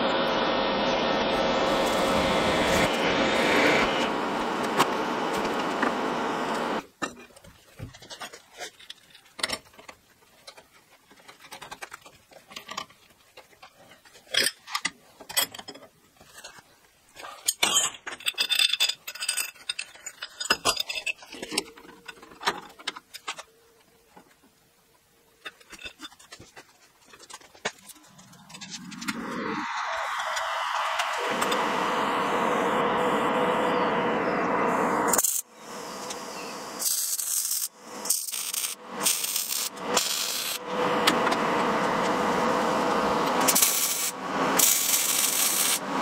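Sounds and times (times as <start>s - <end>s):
drill motor drilling steel: 0.9s - 6.8s, 28.1s - 46.0s
metal clinks and scrapes: 17.3s - 23.4s.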